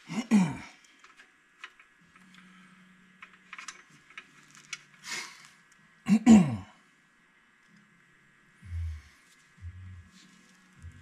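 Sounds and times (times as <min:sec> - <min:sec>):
short breath-like hiss: 0:05.0 - 0:05.6.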